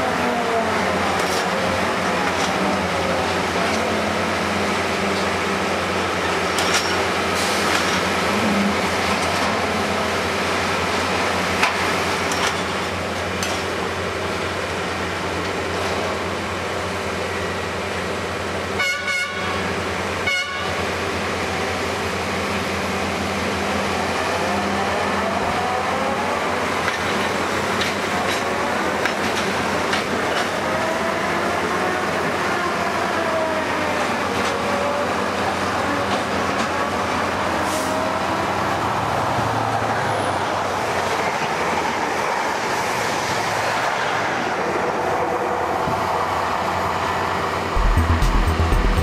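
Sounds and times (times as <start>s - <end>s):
diesel engine droning: 43.6s - 49.0s.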